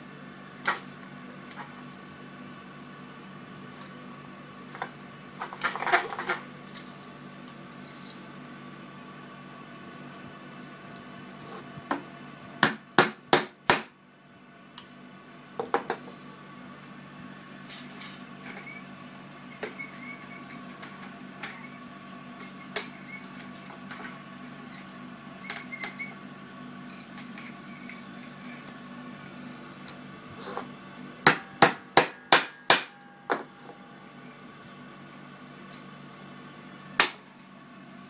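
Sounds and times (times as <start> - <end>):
steady hum: 0.0 - 38.0
hammer tapping a nail: 31.3 - 33.4.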